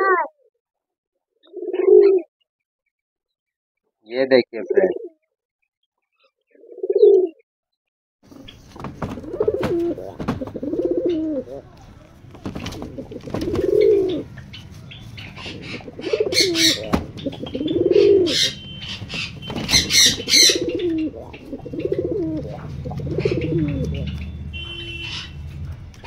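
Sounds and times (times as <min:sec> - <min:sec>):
pigeons cooing: 0:01.4 - 0:02.3, 0:04.6 - 0:05.2, 0:06.5 - 0:07.4, 0:08.3 - 0:26.0
wings flapping: 0:08.3 - 0:24.3.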